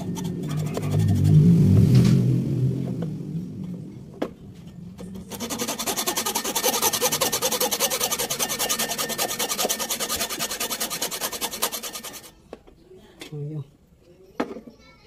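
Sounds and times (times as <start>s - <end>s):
hand tool rasping: 0.0s - 1.4s, 5.2s - 12.3s.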